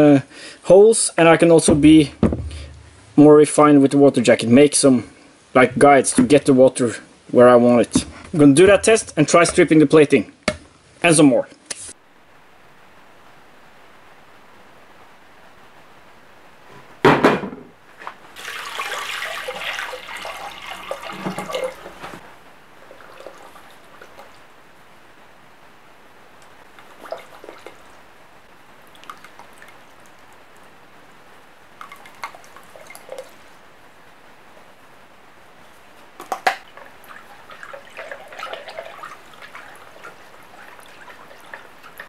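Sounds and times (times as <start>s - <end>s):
water sloshing: 18.3s - 24.5s, 26.7s - 30.8s, 31.7s - 33.7s, 36.2s - 42.0s.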